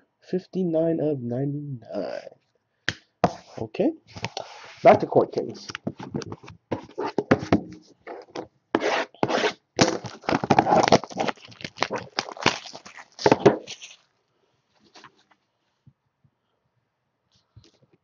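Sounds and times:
cardboard and packaging tearing: 8.2s - 14.1s.

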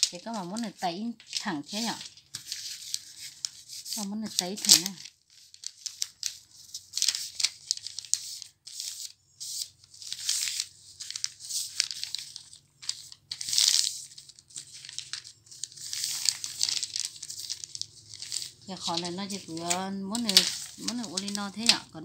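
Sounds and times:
cloth rustling and crinkling: 0.0s - 22.0s.

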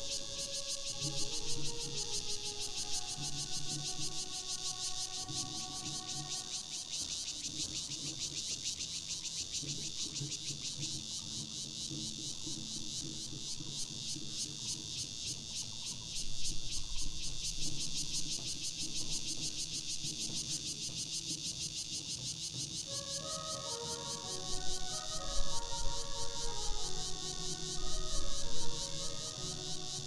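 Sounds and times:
insect chorus chirring: 0.0s - 30.0s.

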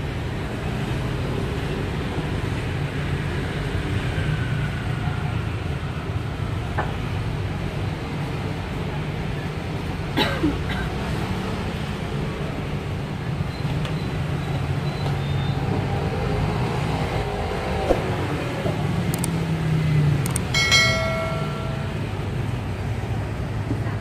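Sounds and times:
click and bell-like chime: 20.3s - 22.4s.

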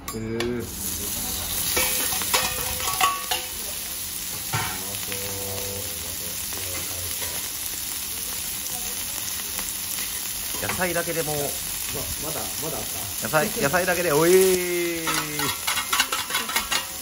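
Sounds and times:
meat and cabbage sizzling on griddle: 0.5s - 17.0s
metal spatula clanks: 1.7s - 3.5s, 15.0s - 17.0s.

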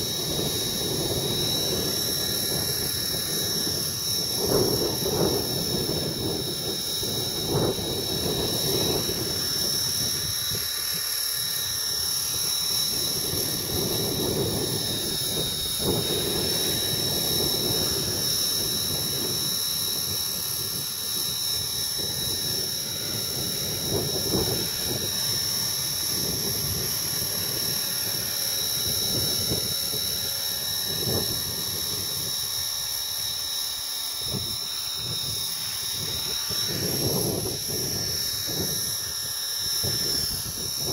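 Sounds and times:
wind buffeting microphone: 0.0s - 33.0s, 34.2s - 40.9s
rc helicopter whine: 0.0s - 40.9s.

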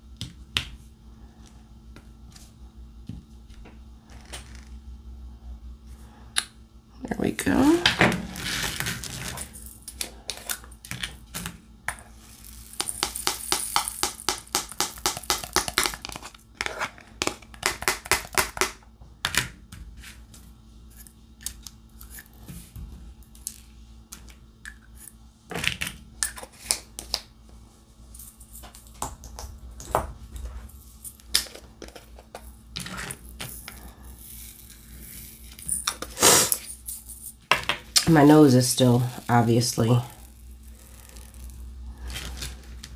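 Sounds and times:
beads clattering: 12.2s - 16.2s, 38.2s - 42.8s
pen tapping beads onto canvas: 12.7s - 16.3s.

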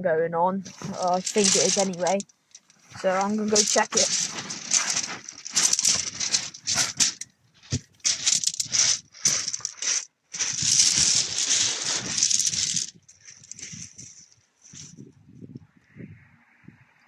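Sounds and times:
footsteps crunching on shingle: 0.7s - 14.0s
fabric rubbing on microphone: 0.7s - 15.0s.

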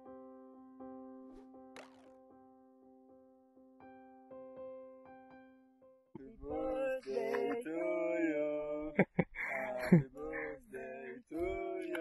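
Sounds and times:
person singing long notes: 6.2s - 12.0s.

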